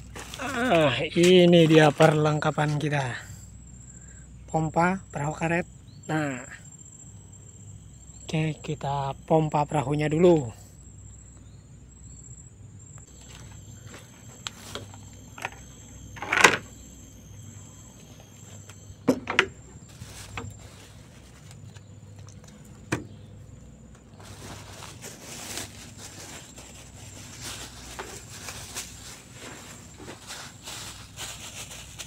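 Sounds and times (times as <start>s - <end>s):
high insect drone: 0.0s - 32.0s
rustling hiss: 24.2s - 32.0s.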